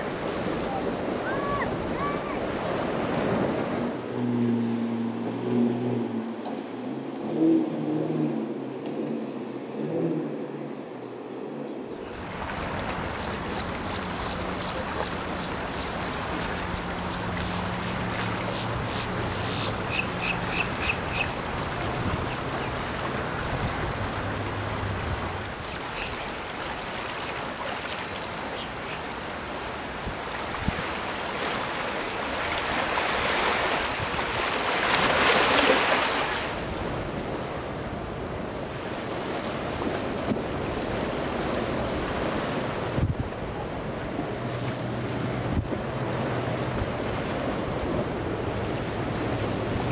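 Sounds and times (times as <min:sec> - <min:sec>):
surf: 0:00.0 - 0:08.6, 0:11.9 - 0:49.9
boat engines humming: 0:00.0 - 0:49.9
rush of water and wind: 0:00.0 - 0:49.9
wind noise: 0:42.4 - 0:43.6.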